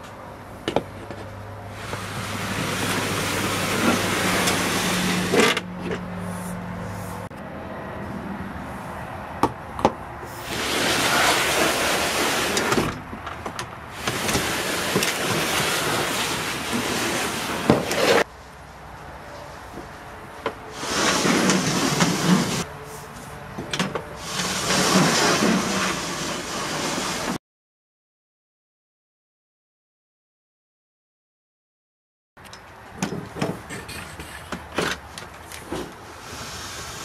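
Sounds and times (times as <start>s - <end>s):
plastic bucket scraping truck bed: 0.7s - 6.0s, 10.4s - 18.3s, 20.5s - 22.7s, 23.7s - 27.4s, 33.0s - 37.0s.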